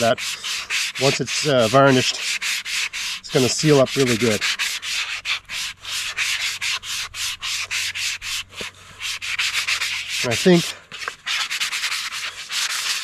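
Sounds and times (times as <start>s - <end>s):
sandpaper rubbing on wood: 0.0s - 13.0s.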